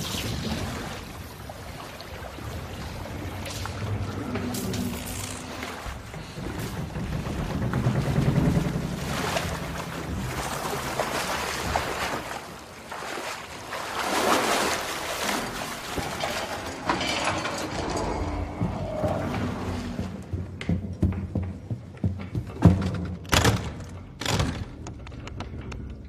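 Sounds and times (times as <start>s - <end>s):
water rushing and sloshing: 0.0s - 20.6s
low rumble: 2.4s - 12.5s, 16.0s - 21.7s.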